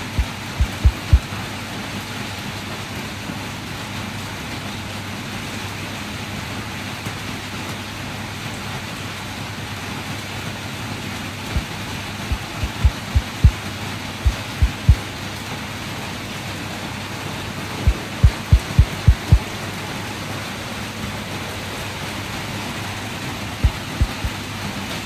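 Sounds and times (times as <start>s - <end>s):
short low thumps: 0.0s - 1.2s, 12.3s - 13.6s, 14.3s - 15.0s, 17.8s - 19.4s, 23.6s - 24.4s
rain hissing: 0.0s - 25.0s.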